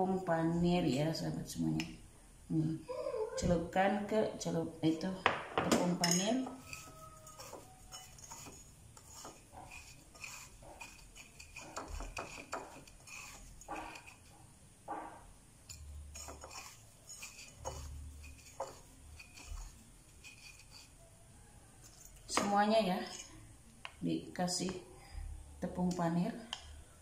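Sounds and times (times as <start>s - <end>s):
breadcrumbs rustling and scratching: 6.6s - 14.4s, 16.1s - 20.9s.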